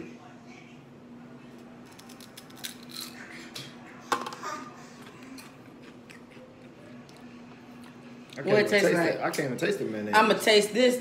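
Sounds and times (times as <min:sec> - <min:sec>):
crunchy chips being chewed: 0:01.9 - 0:03.3.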